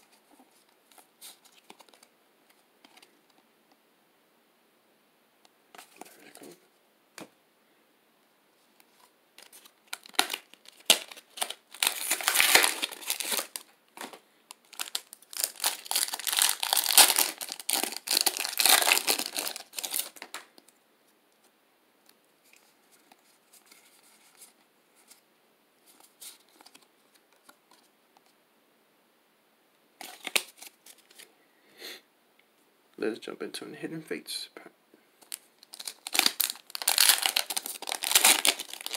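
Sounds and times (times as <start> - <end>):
faint rustling of cards: 0.0 - 3.5, 5.7 - 7.3, 8.5 - 21.6, 22.4 - 28.4, 30.0 - 31.4, 35.0 - 38.9
foil wrapper crinkling and tearing: 9.4 - 20.5, 35.2 - 38.9.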